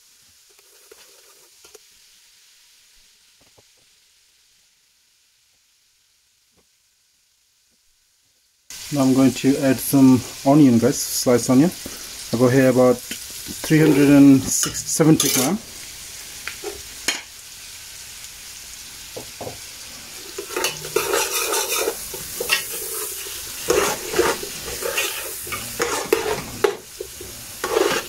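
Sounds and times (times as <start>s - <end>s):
onions sizzling in hot oil: 0.0s - 28.0s
metal spoon scraping pot: 13.7s - 15.5s, 20.2s - 28.0s.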